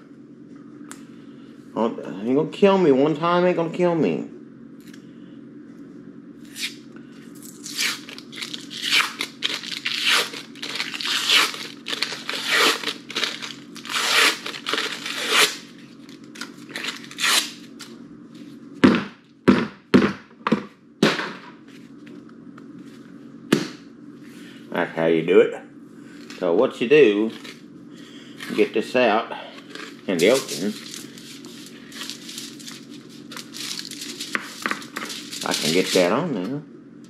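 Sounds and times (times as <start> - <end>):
paper wrapper tearing and crinkling: 7.5 - 17.7, 29.6 - 36.2.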